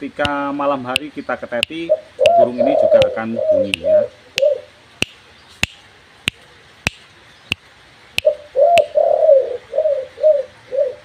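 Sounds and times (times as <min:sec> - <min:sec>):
sharp evenly spaced clicks: 0:00.0 - 0:09.0
dove cooing: 0:01.7 - 0:04.8, 0:08.2 - 0:11.0.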